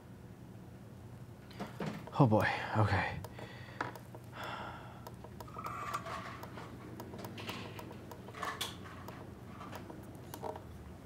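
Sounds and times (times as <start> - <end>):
low steady hum: 0.0 - 11.0
circuit board clicks and taps: 3.2 - 10.7.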